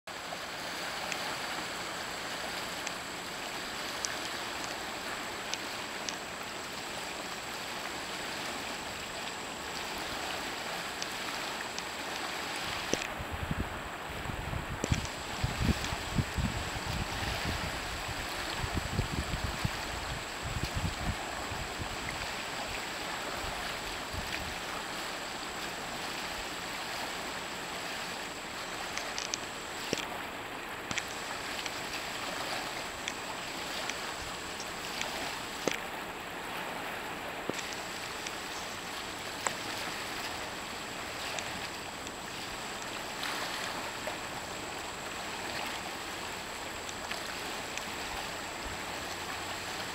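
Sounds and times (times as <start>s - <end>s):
river water rushing: 0.1s - 49.9s
water splashes: 0.1s - 49.9s
wind rumble on microphone: 12.6s - 24.8s.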